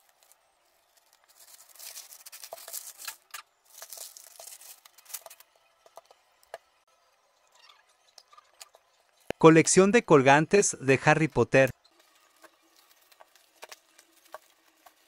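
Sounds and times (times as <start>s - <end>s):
plastic packaging tearing and rustling: 0.0s - 5.6s, 12.0s - 15.0s.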